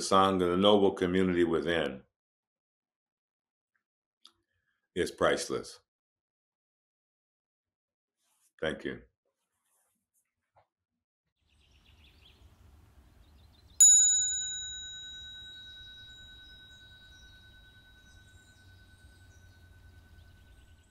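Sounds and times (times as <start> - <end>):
soft bird chirps: 11.4 - 13.8, 15.7 - 20.9
small bell ringing: 13.8 - 20.8.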